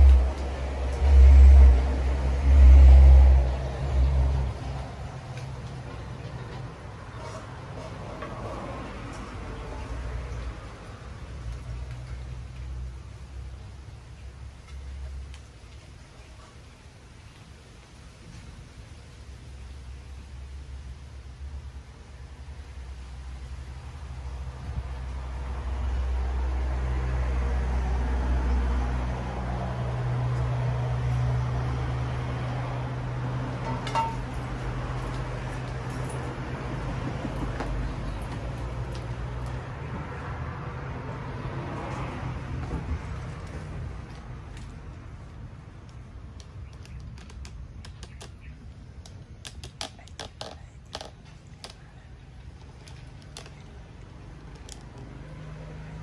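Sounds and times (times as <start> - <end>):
steady low rumble: 0.0 - 7.2
low engine hum: 0.0 - 49.4, 50.6 - 56.0
metal bowl clinks: 33.6 - 34.4.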